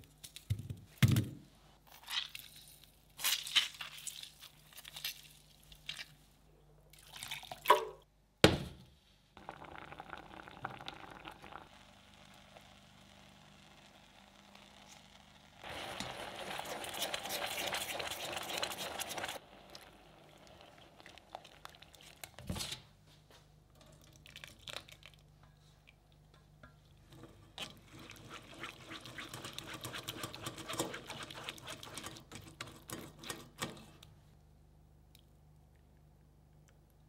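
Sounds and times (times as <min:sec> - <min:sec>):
sauce sizzling in saucepan: 0:09.4 - 0:22.1
spatula pressing sauce through sieve: 0:15.8 - 0:19.4, 0:27.5 - 0:33.7.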